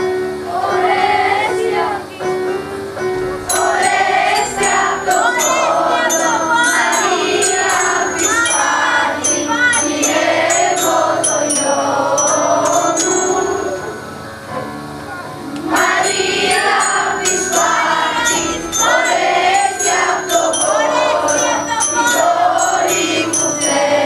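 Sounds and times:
children's choir singing: 0.0s - 2.5s, 3.4s - 14.7s, 15.5s - 24.0s
instrumental accompaniment: 0.0s - 24.0s
bright high-pitched strikes: 3.5s - 14.2s, 15.6s - 24.0s.

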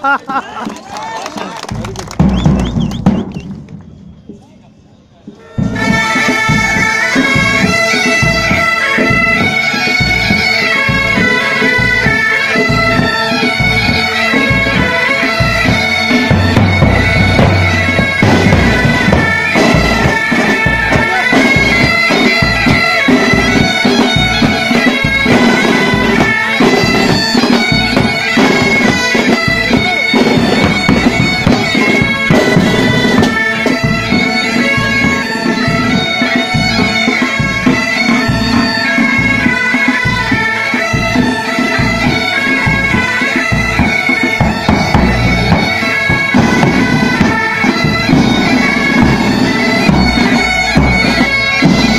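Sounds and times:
snare and bass drums beating: 1.7s - 4.1s, 5.6s - 51.9s
bagpipes playing a tune: 5.4s - 51.9s.

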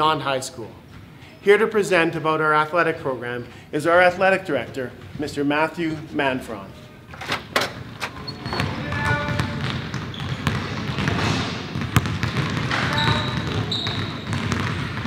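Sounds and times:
sneaker squeaks: 6.7s - 15.0s
basketballs bouncing on wooden floor: 7.4s - 15.0s.

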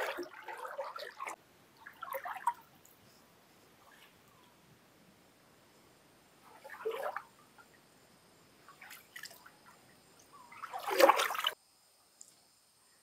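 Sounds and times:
water splashing: 0.0s - 2.7s, 6.4s - 7.4s, 8.7s - 11.6s.

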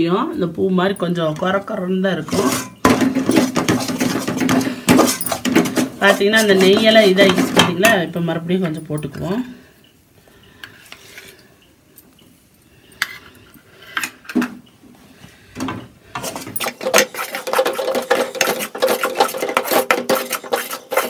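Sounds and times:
metal ladle scraping a pan: 2.1s - 8.0s, 16.1s - 21.0s.

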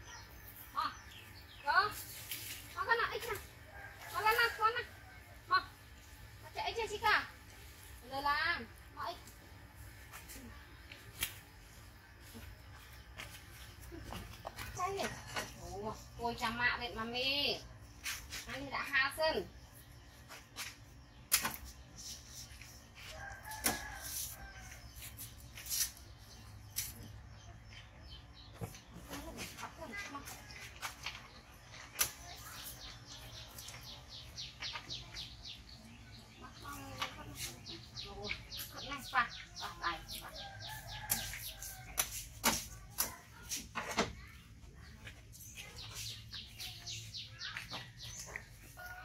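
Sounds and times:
bird chirping: 32.2s - 41.8s.

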